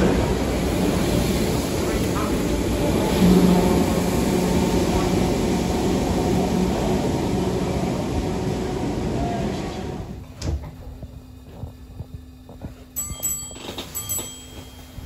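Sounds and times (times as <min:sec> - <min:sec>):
electric train pulling away: 0:00.0 - 0:10.3
low steady train carriage hum: 0:00.0 - 0:15.0.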